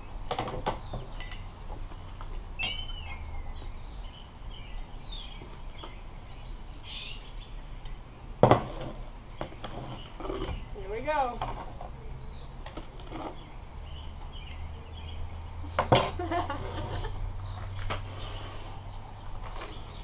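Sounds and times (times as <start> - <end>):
birds chirping: 0.0 - 20.0
spoons clinking against mugs: 1.2 - 1.5.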